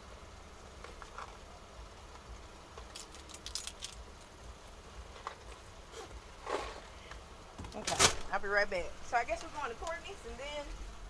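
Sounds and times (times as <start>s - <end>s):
low hum inside car: 0.0s - 11.0s
keys jangling: 2.8s - 4.5s.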